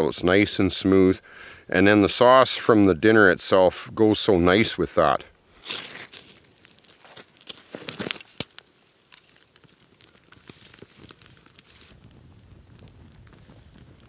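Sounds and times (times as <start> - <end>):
fire flaring with low rush: 0.0 - 14.0
pine needles crackling in fire: 4.2 - 14.0
sharp snaps of fire: 5.4 - 14.0.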